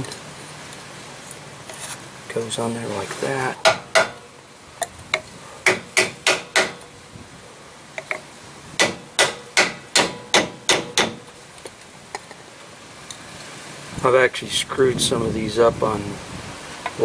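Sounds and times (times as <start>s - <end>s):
hammer striking metal: 3.6s - 4.2s, 5.6s - 6.8s, 8.8s - 11.2s.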